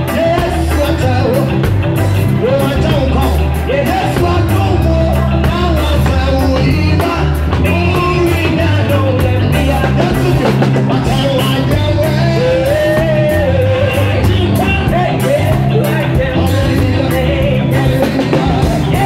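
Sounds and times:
amplified backing music: 0.0s - 19.0s
man singing into microphone: 0.0s - 19.0s.

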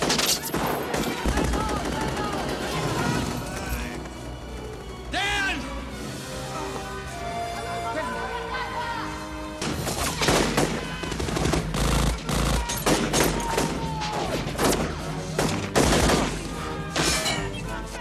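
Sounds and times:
rapid gunfire volley: 0.6s - 2.8s, 9.7s - 16.5s.

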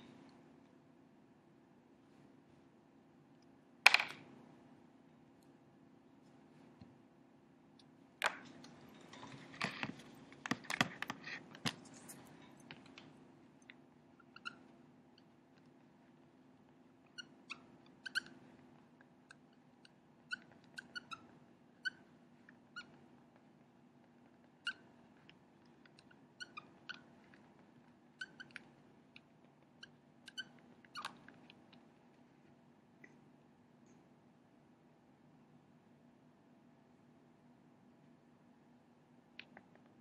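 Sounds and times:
faint low hum: 0.0s - 40.0s
marker squeaking on whiteboard: 14.2s - 15.3s, 17.1s - 18.5s, 19.3s - 22.1s, 22.7s - 23.0s, 25.9s - 27.5s, 28.2s - 28.7s, 29.6s - 31.8s.

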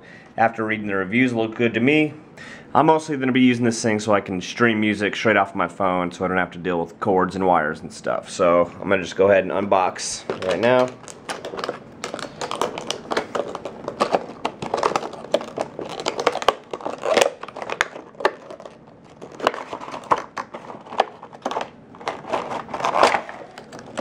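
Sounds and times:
plastic packaging crinkling: 10.0s - 24.0s.

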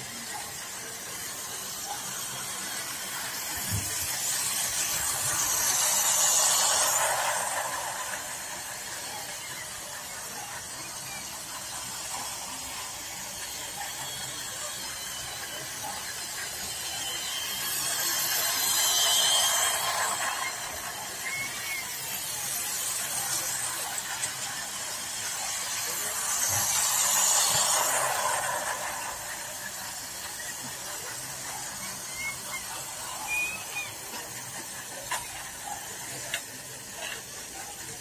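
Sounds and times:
toy trains whirring on track: 0.0s - 38.0s.

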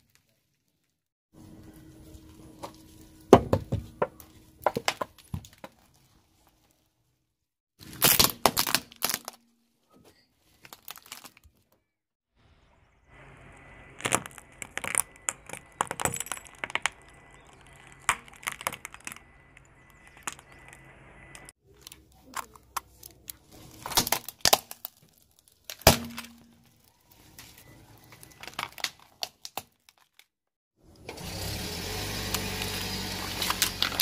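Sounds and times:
tyre crushing plastic toys: 3.3s - 6.2s, 7.8s - 9.6s, 10.4s - 11.8s, 13.9s - 30.4s, 32.3s - 34.0s.

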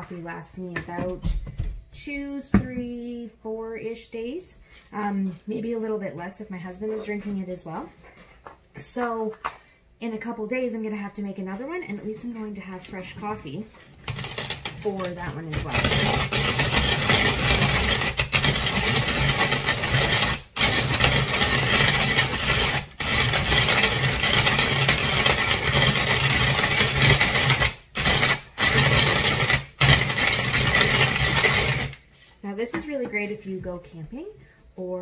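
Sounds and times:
rotary grater grinding coffee beans: 14.0s - 32.0s.

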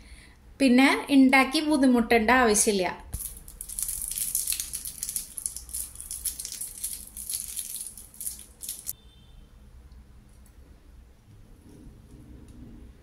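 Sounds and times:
cellophane wrapper crinkling: 3.1s - 9.0s.

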